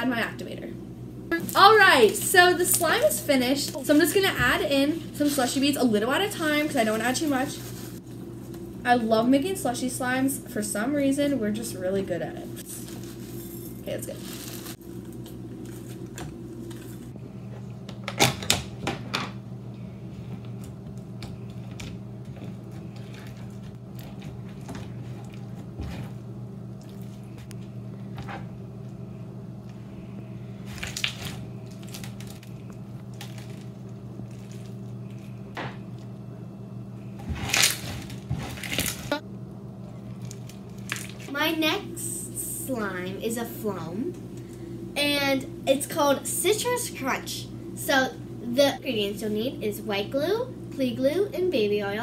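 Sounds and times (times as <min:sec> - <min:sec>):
low hum: 0:00.0 - 0:52.0
slime crunching and crackling: 0:30.6 - 0:35.3, 0:40.0 - 0:41.3.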